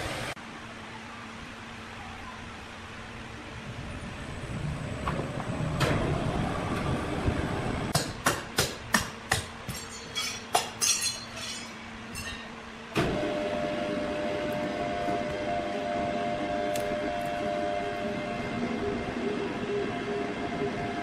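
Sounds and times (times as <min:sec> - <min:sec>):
low machinery rumble: 0:00.0 - 0:08.0, 0:09.6 - 0:21.0
metallic knocks and clanks: 0:09.3 - 0:12.5
machine humming: 0:11.1 - 0:21.0.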